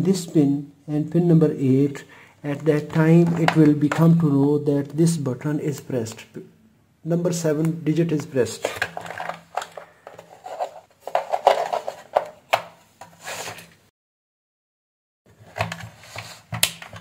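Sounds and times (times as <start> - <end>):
rustling with light clicks and knocks: 2.9 - 4.1, 8.5 - 13.9.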